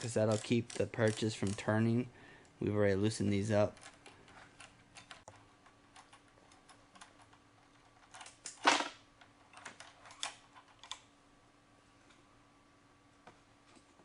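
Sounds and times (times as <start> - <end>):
metallic clicks of wrench on bolts: 0.3 - 1.7.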